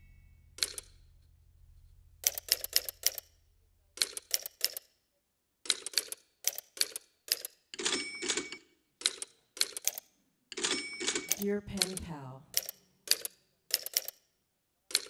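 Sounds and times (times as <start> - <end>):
sampled typewriter clacks: 2.2 - 3.3, 4.0 - 4.9, 5.7 - 14.2.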